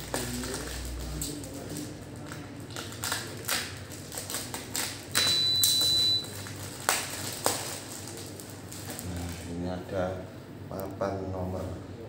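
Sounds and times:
plastic packaging crinkling: 0.0s - 9.6s
plastic wrapping tearing: 0.0s - 9.6s.

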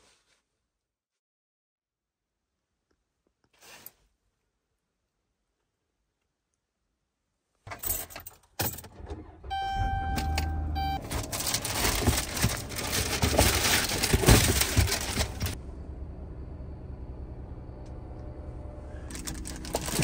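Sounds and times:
electronic warning chime: 9.5s - 11.0s.

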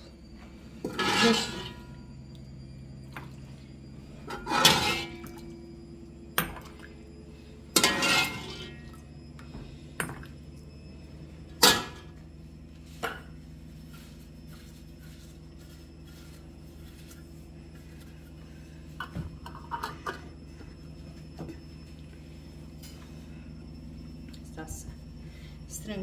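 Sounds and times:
faint steady hum: 0.0s - 26.0s.

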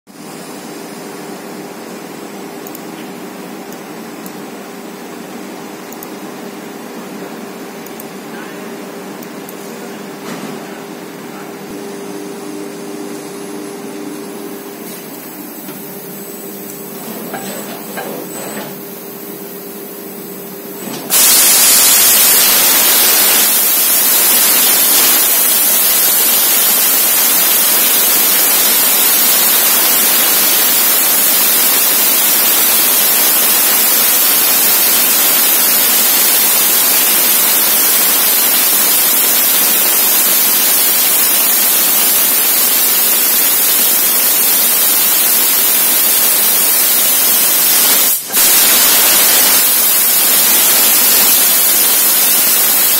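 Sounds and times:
loud steady gas hiss: 20.8s - 52.9s.

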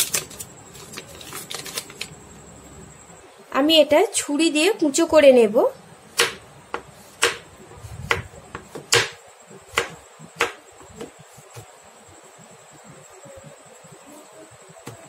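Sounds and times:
knife chopping on cutting board: 6.2s - 7.4s, 8.0s - 11.6s.

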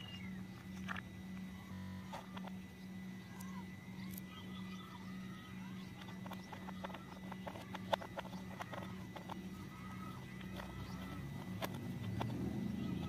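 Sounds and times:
steady low hum: 0.0s - 13.0s
plastic toy parts clicking: 5.7s - 13.0s.

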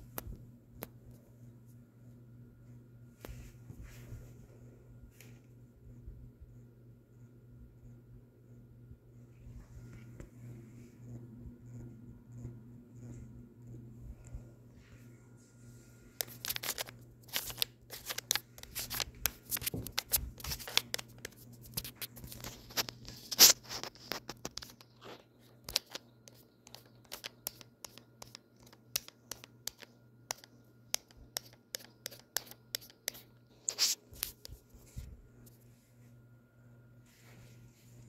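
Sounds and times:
sharp clicks and scraping ticks: 25.6s - 33.2s.

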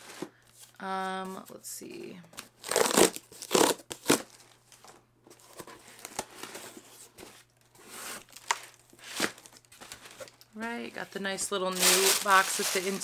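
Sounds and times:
cardboard ripping: 2.6s - 4.4s, 7.8s - 10.0s.

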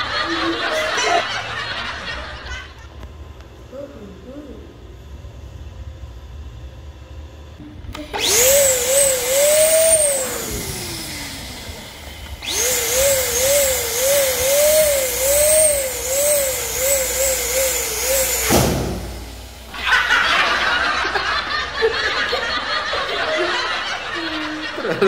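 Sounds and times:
electric balloon pump whining: 4.8s - 24.7s.

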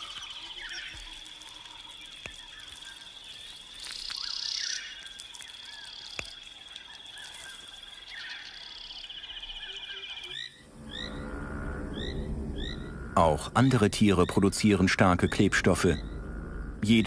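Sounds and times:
birds chirping: 0.0s - 17.0s
insects trilling: 0.0s - 17.0s
rising chirps: 7.2s - 17.0s.

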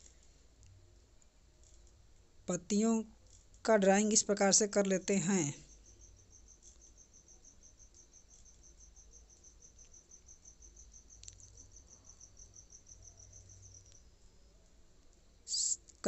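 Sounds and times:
cricket chirping: 4.0s - 16.0s
faint click: 11.2s - 11.6s.

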